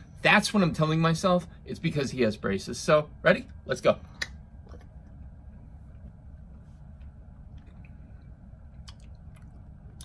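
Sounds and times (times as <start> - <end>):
low room hum: 0.0 - 10.0
gummy candy being chewed: 8.7 - 10.0.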